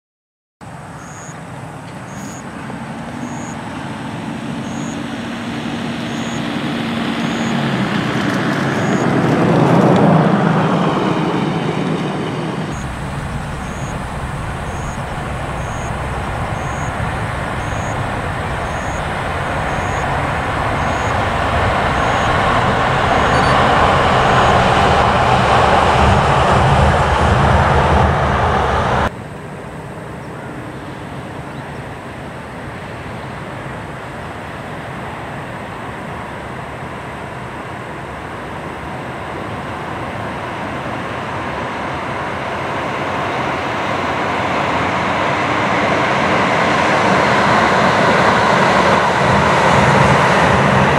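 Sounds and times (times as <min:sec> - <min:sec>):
train rumbling over steel bridge: 0:00.7 - 0:50.9
humming tone dropping in pitch: 0:12.7 - 0:29.1.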